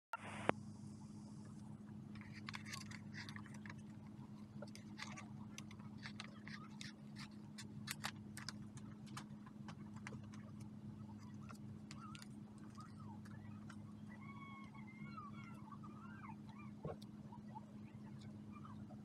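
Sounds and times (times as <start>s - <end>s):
low hum: 0.2s - 19.0s
scissors snipping paper: 2.2s - 3.9s, 4.6s - 10.4s
faint high chirps: 11.1s - 19.0s.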